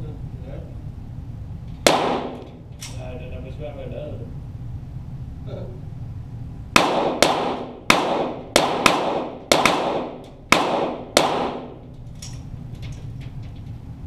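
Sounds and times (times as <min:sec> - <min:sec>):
pistol shots echoing: 0:01.8 - 0:02.6, 0:06.8 - 0:11.8.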